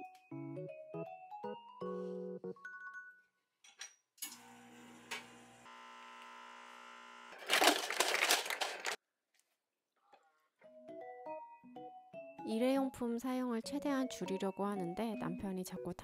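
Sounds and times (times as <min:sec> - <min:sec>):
espresso machine pump humming: 0:04.3 - 0:07.6
ice cubes clattering into cup: 0:07.4 - 0:09.0.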